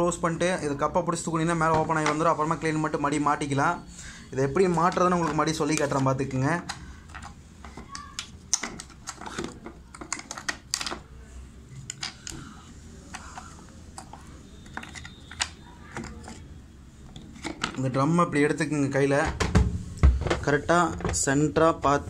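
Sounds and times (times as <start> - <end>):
hard plastic clicking and tapping: 6.6 - 11.1, 11.8 - 16.4.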